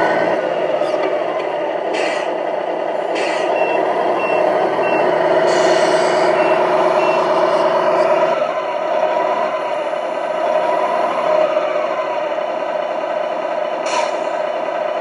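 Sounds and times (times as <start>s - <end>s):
simulated truck engine running: 0.0s - 15.0s
high reversing beeps: 3.4s - 5.2s, 6.3s - 7.4s.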